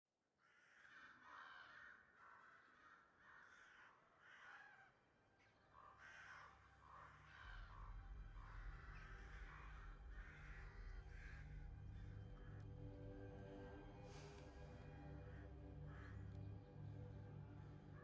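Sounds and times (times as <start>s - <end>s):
crows cawing: 0.4s - 12.7s, 14.8s - 16.5s.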